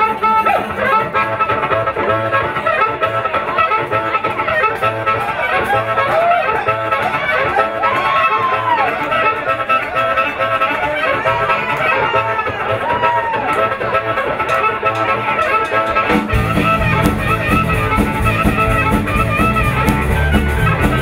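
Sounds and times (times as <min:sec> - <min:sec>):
blues harmonica bending notes: 0:00.0 - 0:21.0
electric blues band: 0:00.0 - 0:21.0.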